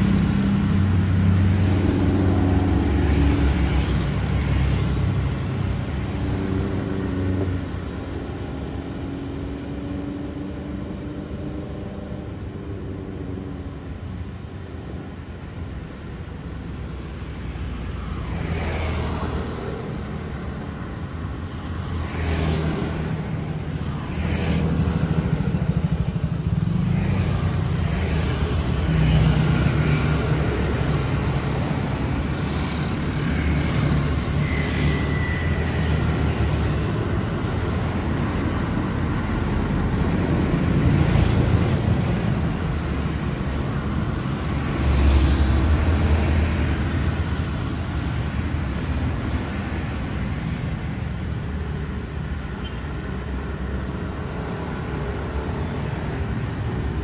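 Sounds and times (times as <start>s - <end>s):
scooters and cars passing: 0.0s - 57.0s.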